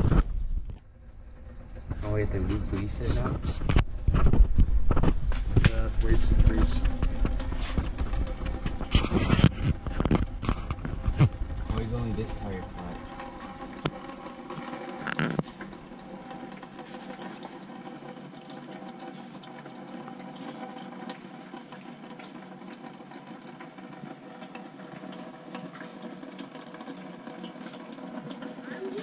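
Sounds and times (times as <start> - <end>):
steady hum: 0.0 - 19.0
oil trickling into pan: 0.9 - 29.0.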